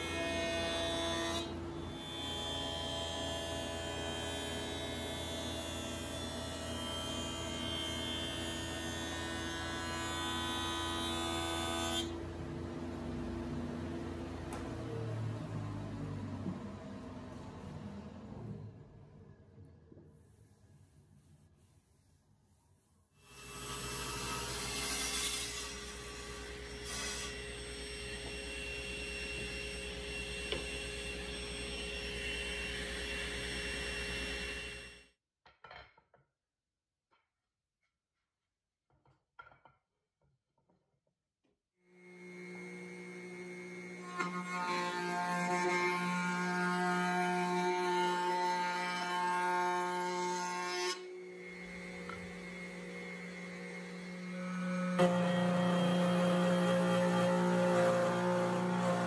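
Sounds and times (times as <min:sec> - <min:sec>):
table saw whining: 0:23.3 - 0:35.1, 0:42.0 - 0:59.0
jointer cutterhead whine: 0:51.2 - 0:59.0.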